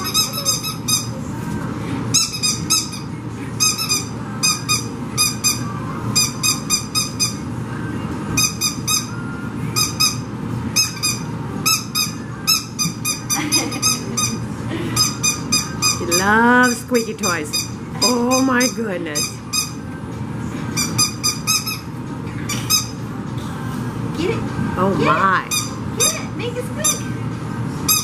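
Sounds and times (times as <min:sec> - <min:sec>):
squeaky dog toy squeaking: 0:00.0 - 0:01.1, 0:02.1 - 0:07.4, 0:08.4 - 0:09.1, 0:09.8 - 0:10.2, 0:10.8 - 0:14.4, 0:15.0 - 0:19.8, 0:20.7 - 0:21.9, 0:25.0 - 0:27.1.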